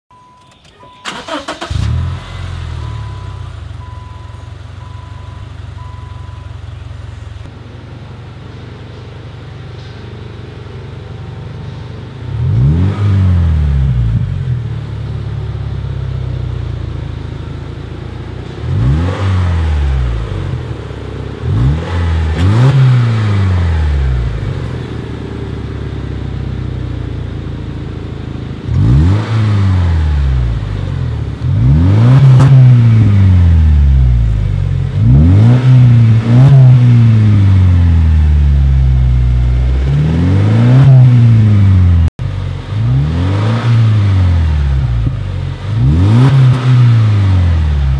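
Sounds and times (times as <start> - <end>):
car engine cranking and idling: 0.1 - 47.9
engine revving: 1.0 - 4.2, 11.6 - 14.6, 18.4 - 26.9, 28.6 - 47.9.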